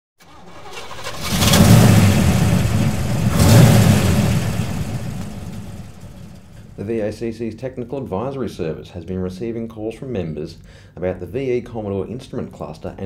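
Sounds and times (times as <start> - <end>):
car engine revving: 0.2 - 6.8.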